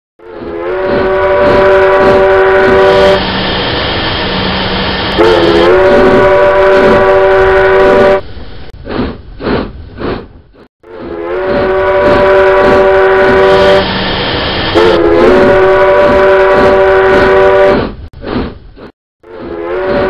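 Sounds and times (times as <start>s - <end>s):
train whistle chord blasts: 0.2s - 3.5s, 4.3s - 8.2s, 10.8s - 14.1s, 14.7s - 17.8s, 19.2s - 20.0s.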